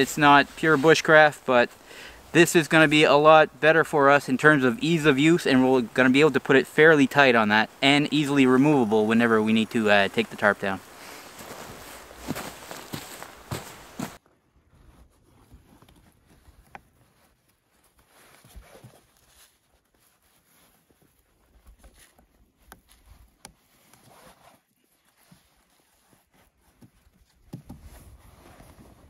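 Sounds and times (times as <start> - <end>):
hands working a bungee cord: 14.9 - 29.0.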